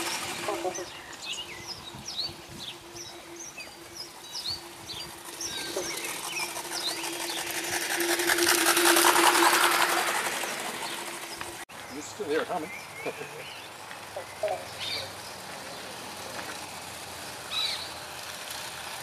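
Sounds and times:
steady hum: 0.0s - 11.7s
birds chirping: 0.0s - 18.2s
steam locomotive exhaust chuffs: 2.0s - 11.6s.

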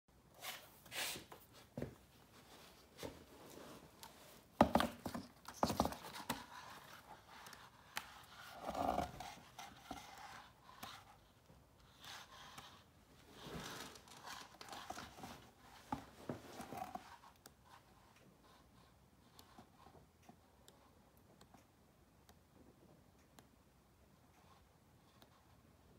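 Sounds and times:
book pages flipping: 11.9s - 17.4s.

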